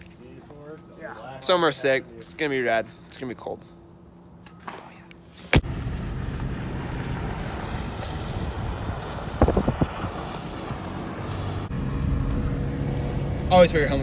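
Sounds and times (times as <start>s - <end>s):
engine and tyre rumble: 5.6s - 14.0s.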